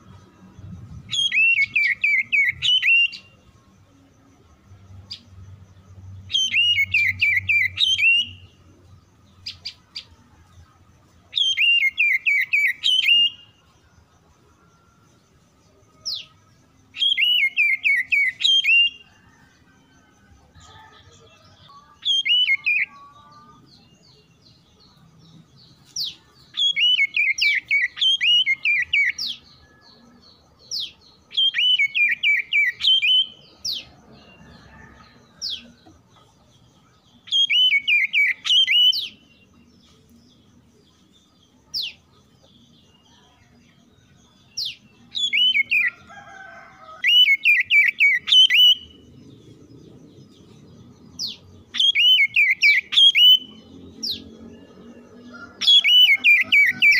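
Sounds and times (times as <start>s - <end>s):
bird singing fluty whistles: 1.1s - 3.4s, 6.3s - 8.5s, 11.3s - 13.6s, 16.9s - 19.1s, 26.5s - 29.7s, 31.3s - 33.8s, 37.3s - 39.3s, 45.1s - 46.0s, 47.0s - 49.0s, 51.3s - 54.2s.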